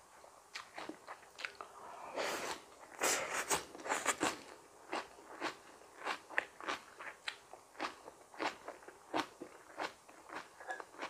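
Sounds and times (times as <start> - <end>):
crunchy chewing of raw vegetables: 3.5 - 11.0.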